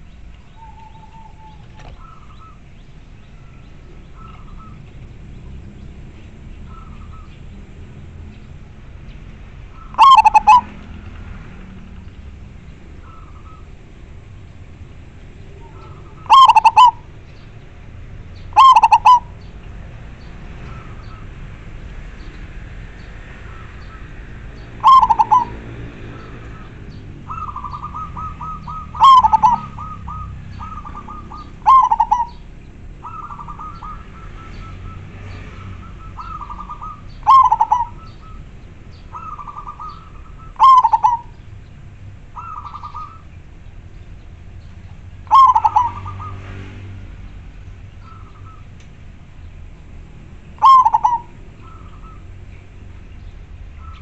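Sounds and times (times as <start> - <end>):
dove cooing calls: 0.0 - 5.7, 6.6 - 8.0, 9.6 - 11.1, 11.8 - 13.9, 15.0 - 19.8, 20.6 - 21.4, 23.4 - 43.6, 44.9 - 46.5, 48.0 - 48.8, 50.4 - 52.5, 53.7 - 54.0.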